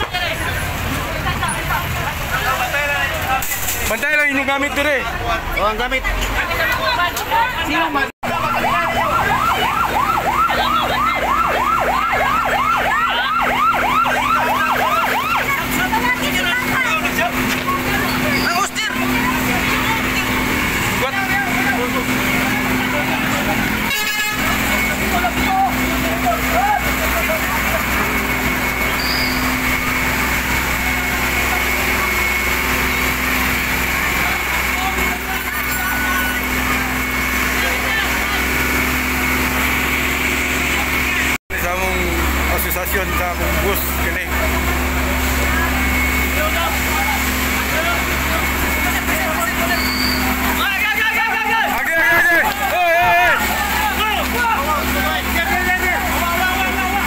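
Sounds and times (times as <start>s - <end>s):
fire truck siren yelping: 7.7s - 57.0s.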